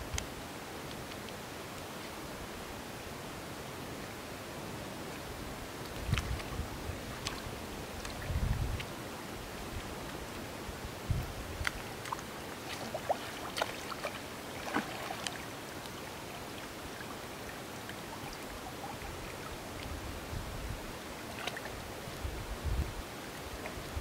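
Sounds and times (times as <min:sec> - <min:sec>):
legs wading in water: 0:05.8 - 0:10.5, 0:11.4 - 0:20.2, 0:20.9 - 0:22.2
wind buffeting microphone: 0:06.0 - 0:08.9, 0:10.7 - 0:11.8, 0:19.9 - 0:20.9, 0:22.2 - 0:23.0
fish splashing water: 0:11.8 - 0:15.5.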